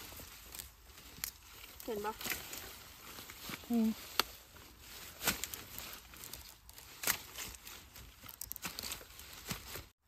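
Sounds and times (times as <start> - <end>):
leaves and stalks rustling: 0.0 - 10.0.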